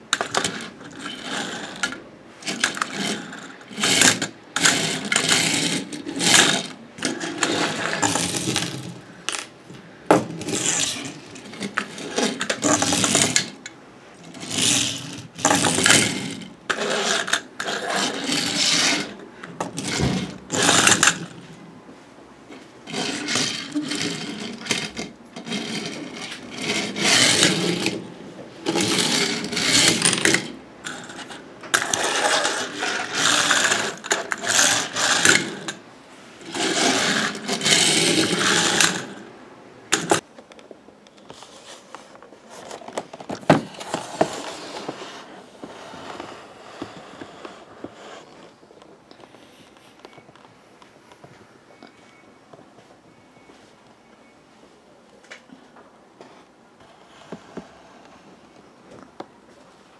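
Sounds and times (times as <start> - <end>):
plastic toys clattering: 0.1 - 9.5, 10.1 - 21.5, 22.5 - 35.8, 36.4 - 39.3, 39.9 - 40.2.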